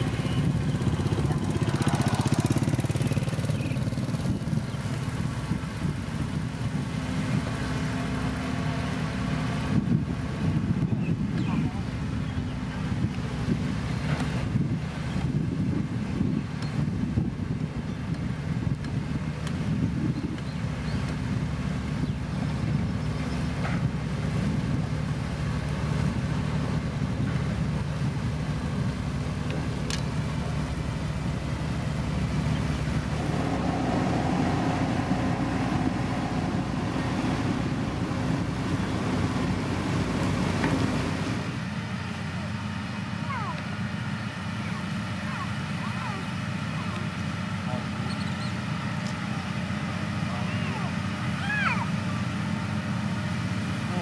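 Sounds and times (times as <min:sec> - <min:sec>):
diesel engine running: 0:00.0 - 0:54.0
higher steady tone: 0:32.6 - 0:42.6.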